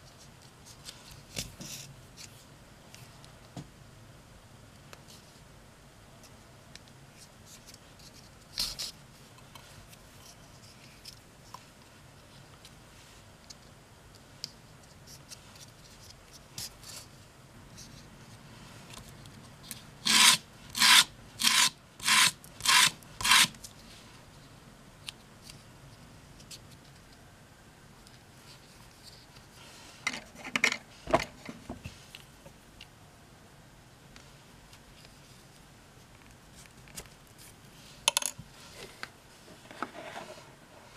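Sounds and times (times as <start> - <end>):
faint handling sounds: 0.0 - 3.6, 4.8 - 20.0, 27.9 - 33.0, 34.1 - 40.9.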